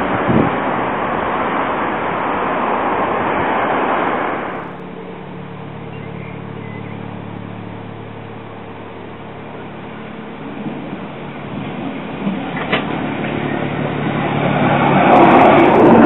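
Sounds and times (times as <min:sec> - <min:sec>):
wind on microphone: 0:00.0 - 0:04.8, 0:09.9 - 0:16.0
tram humming: 0:00.0 - 0:16.0.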